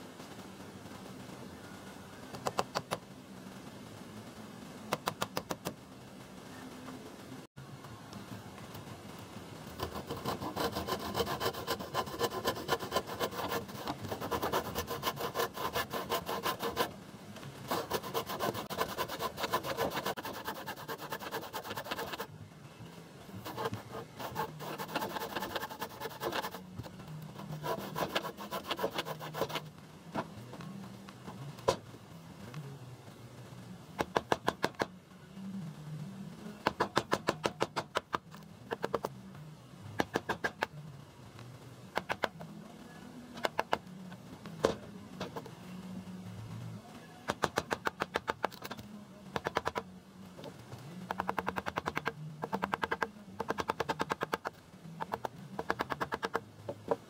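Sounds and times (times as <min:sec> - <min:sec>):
handsaw cutting wood: 0:09.8 - 0:16.9, 0:17.7 - 0:22.3, 0:23.4 - 0:26.6, 0:27.4 - 0:29.7.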